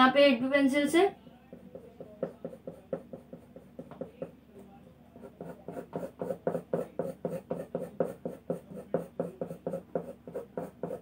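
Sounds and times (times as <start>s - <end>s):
pencil scratching on paper: 1.5s - 4.2s, 5.1s - 11.0s.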